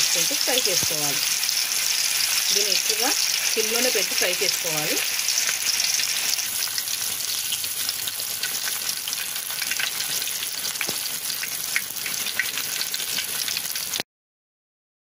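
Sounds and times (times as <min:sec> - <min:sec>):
chicken deep-frying in oil: 0:00.0 - 0:14.0
oil popping and crackling: 0:00.0 - 0:14.0.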